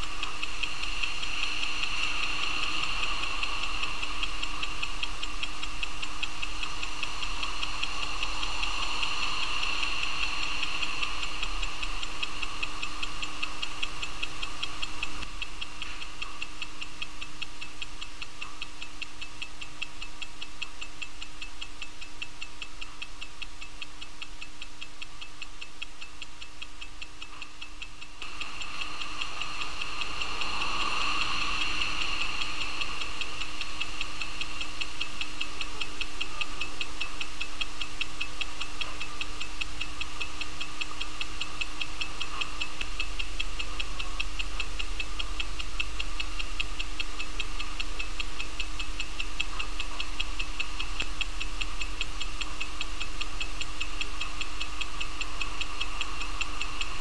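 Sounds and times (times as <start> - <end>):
watch movement ticking: 0.0 - 57.0.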